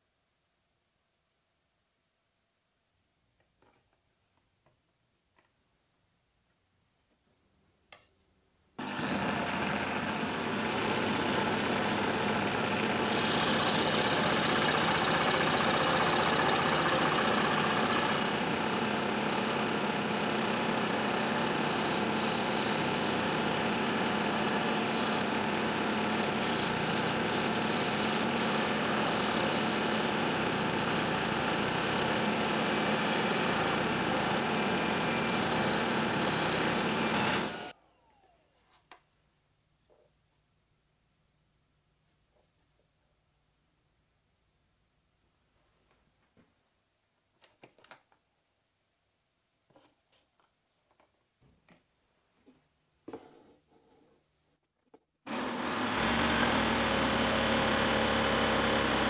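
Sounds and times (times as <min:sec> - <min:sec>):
scroll saw cutting plywood: 0:08.8 - 0:38.8, 0:55.3 - 0:59.0.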